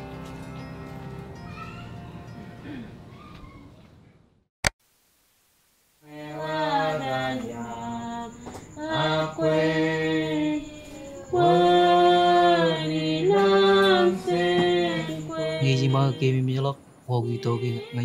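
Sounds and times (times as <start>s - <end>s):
person singing slow melody: 6.0s - 18.0s.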